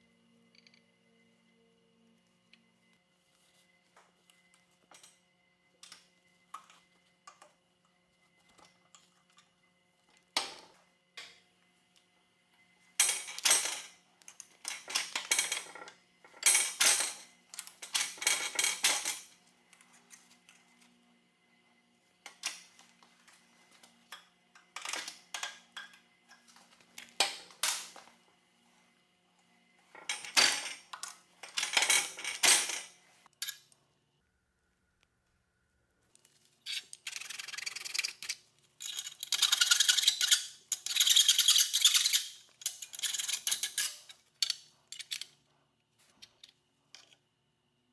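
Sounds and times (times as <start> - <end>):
metal scraping and clinking: 36.3 - 45.3.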